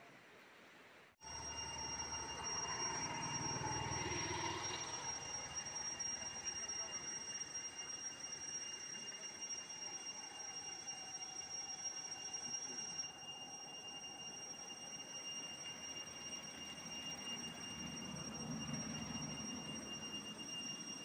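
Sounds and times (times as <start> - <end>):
faint background noise: 0.0 - 14.3
high-pitched whine: 1.2 - 21.0.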